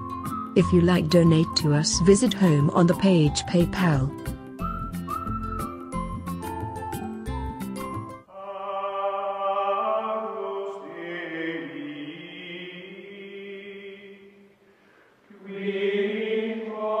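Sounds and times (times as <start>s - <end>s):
choral chant: 8.3s - 14.5s, 15.3s - 17.0s.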